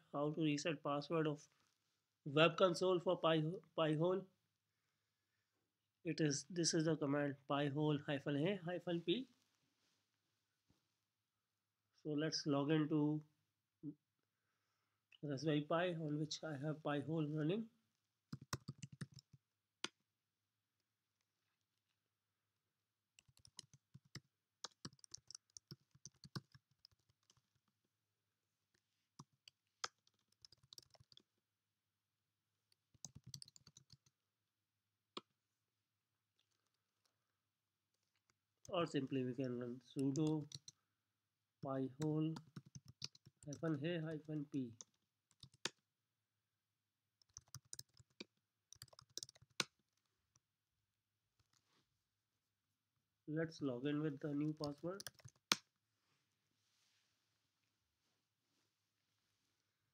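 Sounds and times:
computer keyboard typing: 18.3s - 19.4s, 23.2s - 27.7s, 29.2s - 31.3s, 32.7s - 34.1s, 40.0s - 40.8s, 42.0s - 43.8s, 44.8s - 45.8s, 47.2s - 49.8s, 54.4s - 55.6s.

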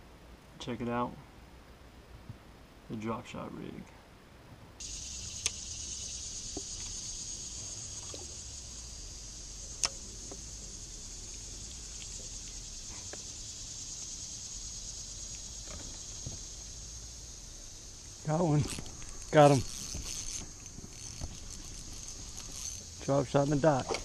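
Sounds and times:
high-pitched insect chorus: 4.8s - 24.0s
sharp clicks: 9.8s - 10.4s.

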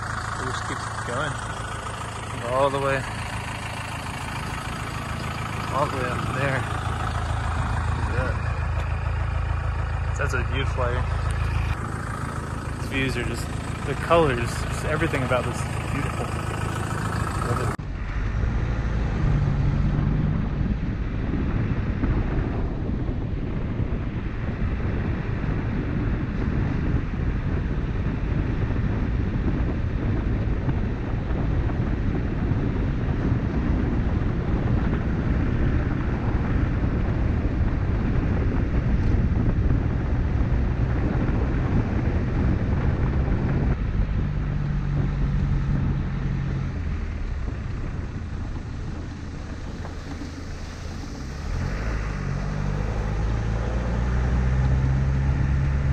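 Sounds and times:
tyres on gravel: 0.0s - 17.8s
engine drone: 0.0s - 55.9s
wind buffeting microphone: 0.0s - 55.9s.

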